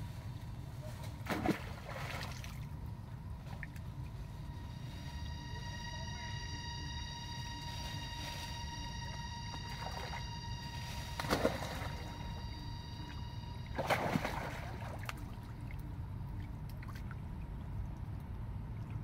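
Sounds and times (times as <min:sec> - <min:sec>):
faint high-pitched whine: 0:00.0 - 0:19.0
steady low rumble: 0:00.0 - 0:19.0
water splashing: 0:01.2 - 0:04.2, 0:09.7 - 0:19.0.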